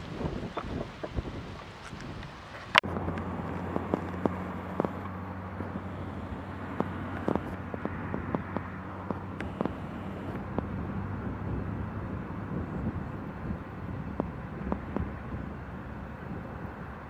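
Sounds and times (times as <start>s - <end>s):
distant engine droning: 0.0s - 17.0s
sharp clicks: 0.5s - 10.7s.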